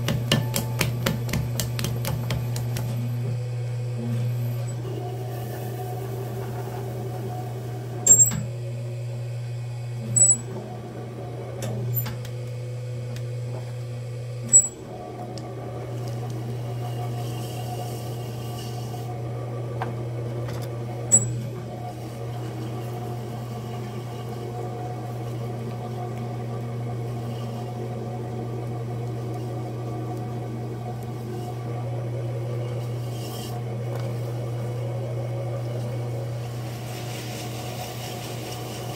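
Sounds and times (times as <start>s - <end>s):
wet clay worked by hands: 0.0s - 3.1s
pottery wheel motor humming: 0.0s - 38.9s.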